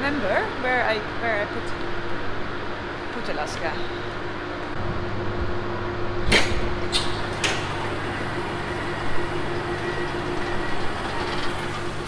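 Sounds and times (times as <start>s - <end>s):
powered door clunk: 6.3s - 12.0s.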